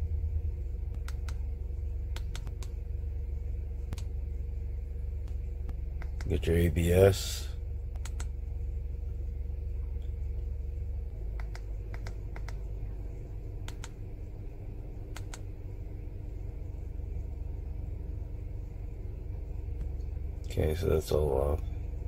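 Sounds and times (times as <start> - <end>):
low rumble with faint hum: 0.0 - 22.0
buttons clicking: 2.1 - 2.7, 7.9 - 8.3, 11.4 - 12.6, 13.6 - 14.0, 15.1 - 15.4.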